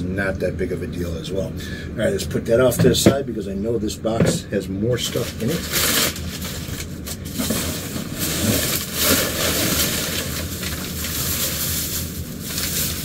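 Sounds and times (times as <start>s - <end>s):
plastic bag rustling and crinkling: 5.0s - 13.0s.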